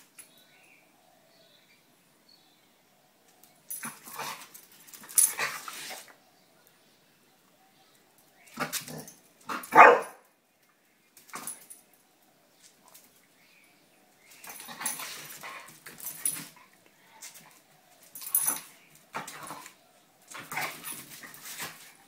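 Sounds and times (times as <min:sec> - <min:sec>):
dogs barking and yipping: 0:08.6 - 0:10.2.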